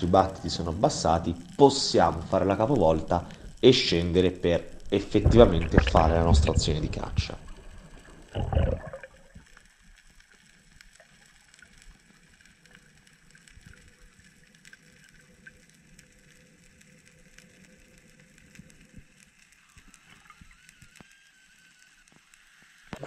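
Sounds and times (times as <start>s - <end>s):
underwater hiss: 0.0s - 9.9s
small clicks and crackles: 0.0s - 23.0s.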